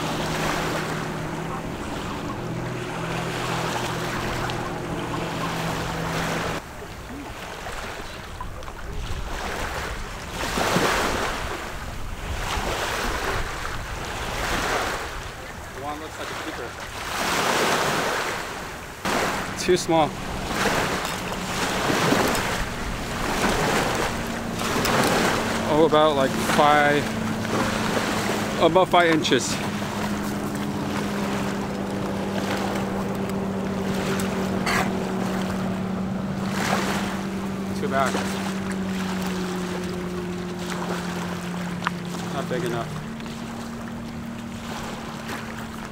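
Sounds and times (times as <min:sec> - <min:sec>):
motor humming: 0:00.0 - 0:06.6
wind rumbling on microphone: 0:00.0 - 0:15.8, 0:16.8 - 0:28.6
ocean surf washing on shore: 0:00.0 - 0:45.9.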